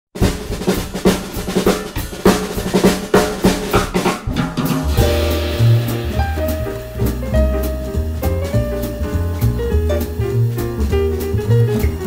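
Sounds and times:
fast drum hits: 0.2 - 12.0
held music notes: 4.6 - 12.0.

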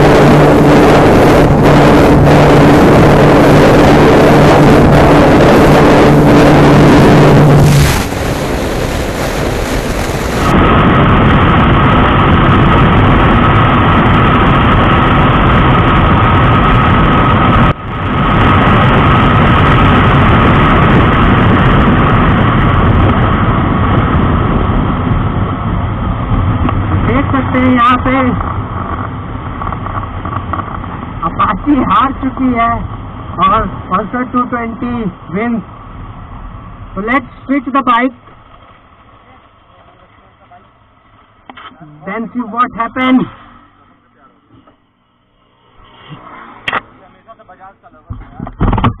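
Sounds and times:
motorcycle engine at full speed: 0.0 - 34.5
wind rush: 0.0 - 49.0.

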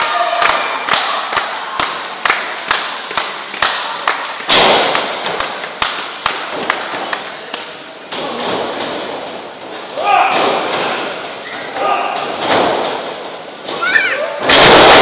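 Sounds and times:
hand claps echoing: 0.0 - 7.8
loud crash: 14.4 - 15.0.

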